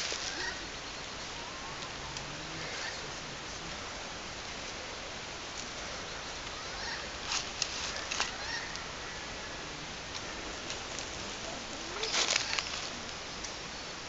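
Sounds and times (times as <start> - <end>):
rustles: 0.0 - 14.0
steady outdoor hiss: 0.0 - 14.0.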